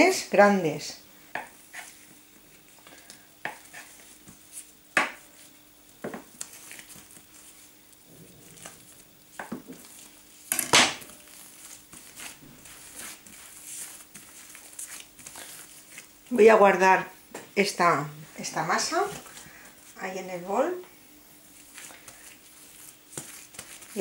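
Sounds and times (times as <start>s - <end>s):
faint steady hum: 0.0s - 24.0s
knife cutting dough: 11.2s - 16.0s.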